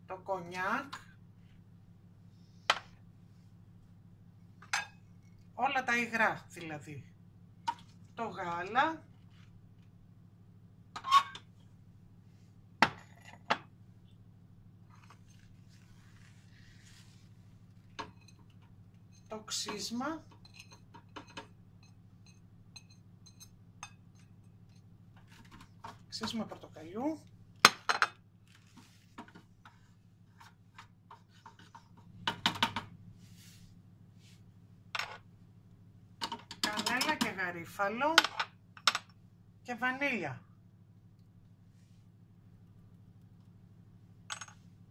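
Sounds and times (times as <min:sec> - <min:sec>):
faint steady hum: 0:00.0 - 0:44.9.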